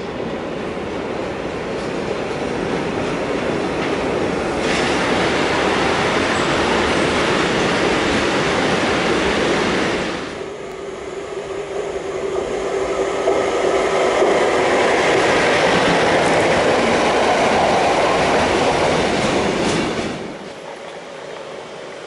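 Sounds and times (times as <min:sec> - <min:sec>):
freight train rumbling past: 0:00.0 - 0:22.0.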